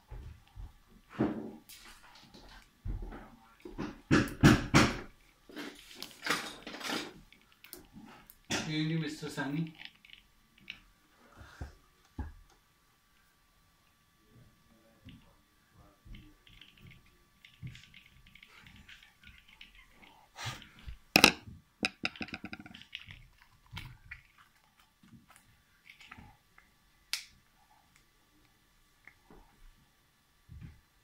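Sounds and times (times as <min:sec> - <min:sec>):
small plastic clicks and rustles: 0:16.1 - 0:28.1.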